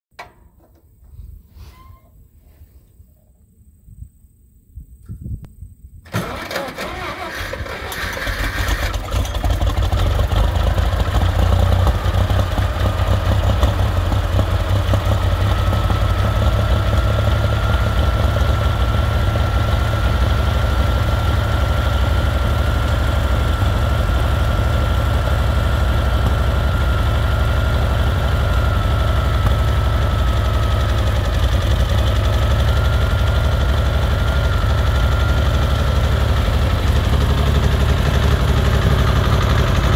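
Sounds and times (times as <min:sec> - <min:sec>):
tractor engine starting and idling: 0:06.0 - 0:39.9.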